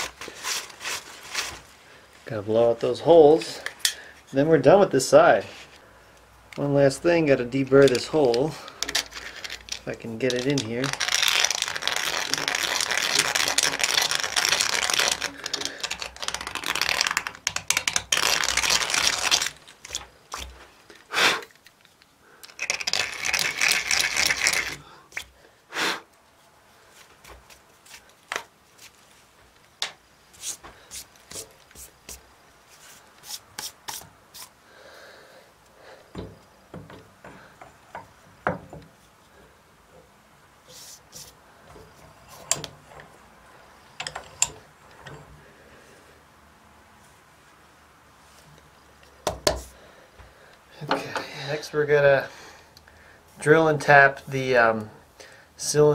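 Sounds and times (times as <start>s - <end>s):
light clicks and knocks of tools: 35.6s - 39.0s, 41.6s - 43.2s, 43.9s - 45.4s.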